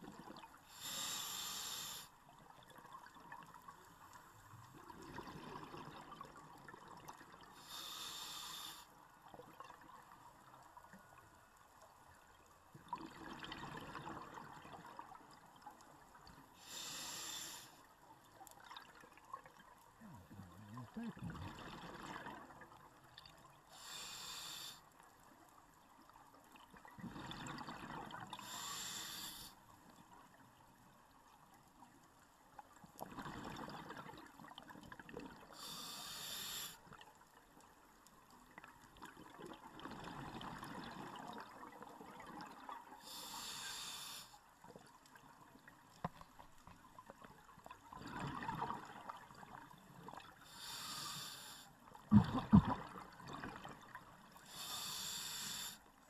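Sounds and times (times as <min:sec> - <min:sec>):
regulator inhale hiss: 0:00.7 - 0:02.2, 0:07.6 - 0:08.9, 0:16.6 - 0:17.9, 0:23.7 - 0:25.0, 0:28.4 - 0:29.6, 0:35.6 - 0:36.8, 0:43.0 - 0:44.4, 0:50.4 - 0:51.8, 0:54.4 - 0:55.9
exhaled bubbles rushing: 0:52.1 - 0:53.8.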